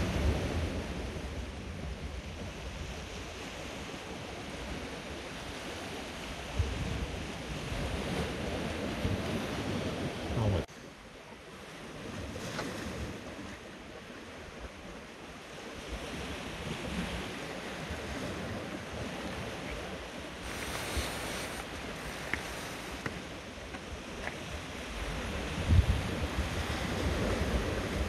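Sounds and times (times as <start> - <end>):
waves breaking on boulders: 15.6 - 28.0
wind buffeting microphone: 15.9 - 28.0.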